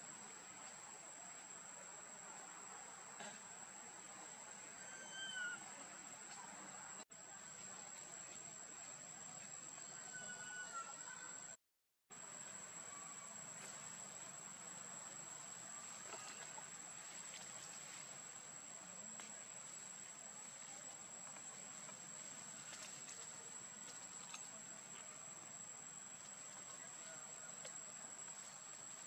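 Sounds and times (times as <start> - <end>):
crickets trilling: 12.2 - 29.0
faint rustles and ticks: 13.5 - 29.0.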